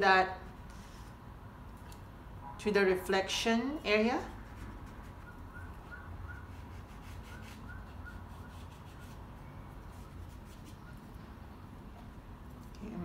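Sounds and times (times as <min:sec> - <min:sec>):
paintbrush scratching on paper: 0:04.2 - 0:11.1.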